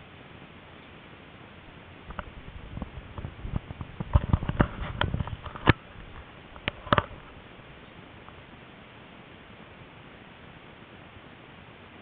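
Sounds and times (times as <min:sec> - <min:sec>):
sharp clicks and knocks: 0:02.1 - 0:07.4.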